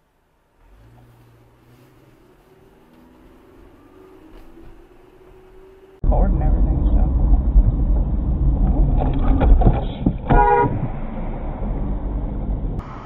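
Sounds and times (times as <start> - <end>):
engine and road rumble: 0.0 - 13.0
car horn blast: 10.3 - 10.9.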